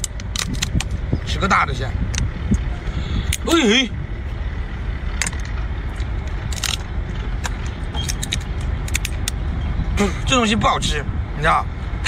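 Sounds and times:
low background rumble: 0:00.0 - 0:12.0
shrimp shell cracking: 0:06.5 - 0:09.3.

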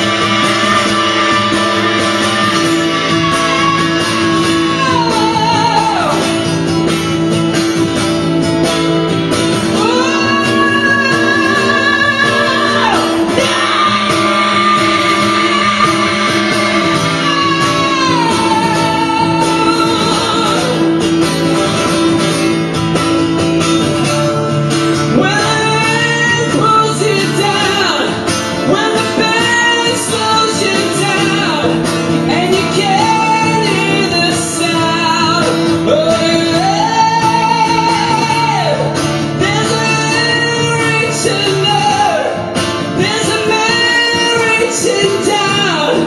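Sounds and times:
man singing long high notes: 0:00.0 - 0:06.2, 0:09.9 - 0:20.8
guitar chords: 0:00.0 - 0:46.0.

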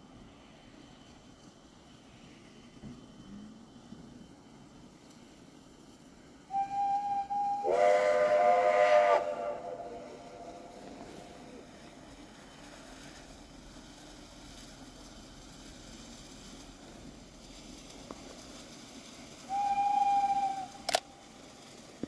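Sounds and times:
faint background noise: 0:00.0 - 0:22.0
steam locomotive whistle: 0:06.5 - 0:11.9, 0:19.4 - 0:21.3.

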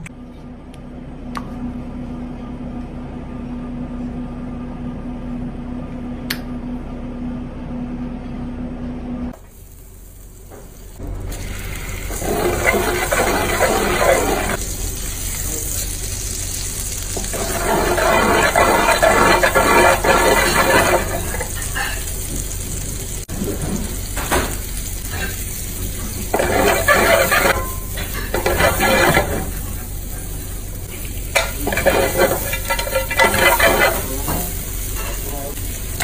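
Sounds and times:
squid frying loudly: 0:09.4 - 0:36.0
butter hissing in frying pan: 0:11.4 - 0:36.0.

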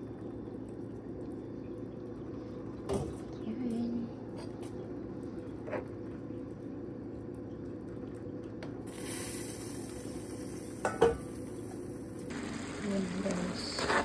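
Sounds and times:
gravy simmering: 0:00.0 - 0:09.0.

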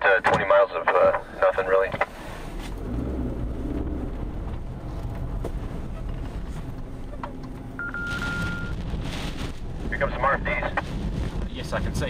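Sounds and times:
car rumble from inside: 0:00.2 - 0:12.0
wind noise on microphone: 0:02.7 - 0:12.0
high beep: 0:07.8 - 0:08.8.

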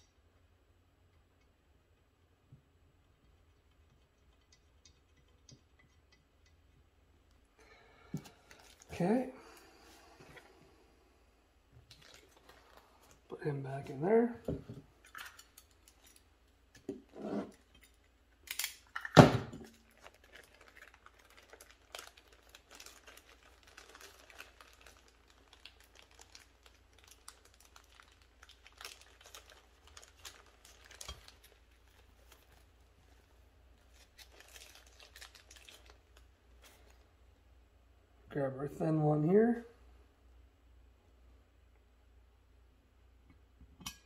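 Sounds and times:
crinkling: 0:07.3 - 0:10.8, 0:11.8 - 0:37.2.

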